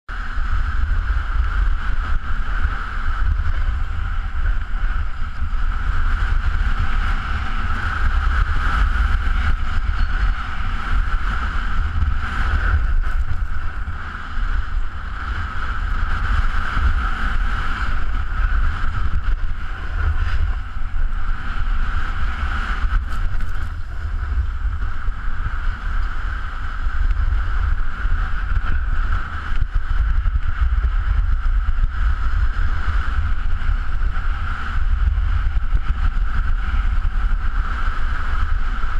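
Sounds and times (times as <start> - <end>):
wind buffeting microphone: 0.1 - 38.9.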